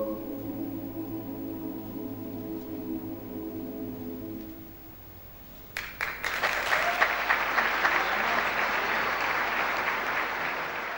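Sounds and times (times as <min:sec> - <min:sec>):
choir holding chord: 0:00.0 - 0:05.0
audience applauding: 0:05.8 - 0:10.9.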